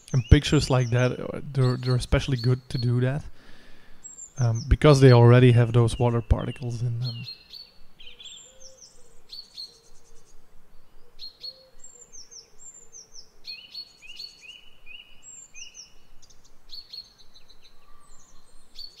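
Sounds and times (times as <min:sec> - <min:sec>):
birds chirping: 0:00.0 - 0:19.0
lower whistled bird notes: 0:04.0 - 0:19.0.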